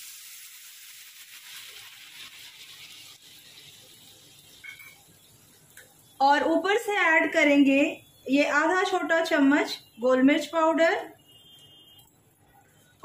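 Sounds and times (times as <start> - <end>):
water splashing into hot pan: 0.0 - 6.2.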